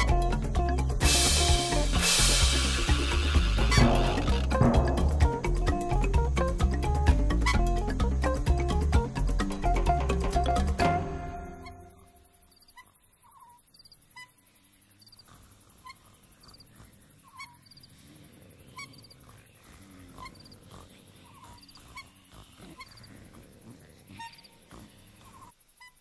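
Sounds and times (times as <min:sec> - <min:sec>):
music: 0:00.0 - 0:12.3
night insects chirping: 0:00.0 - 0:26.0.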